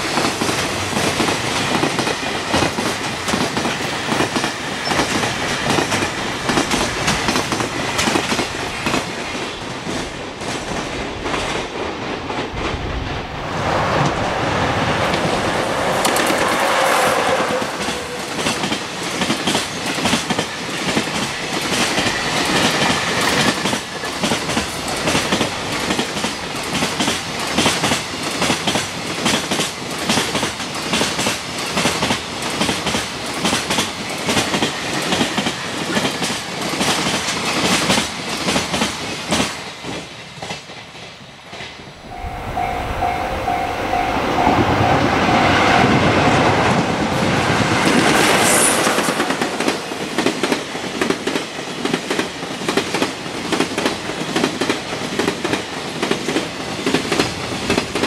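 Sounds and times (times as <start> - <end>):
train wheels clickety-clack: 0.0 - 12.9, 15.0 - 58.0
approaching train rumble: 0.0 - 58.0
level-crossing warning bell: 42.0 - 47.8.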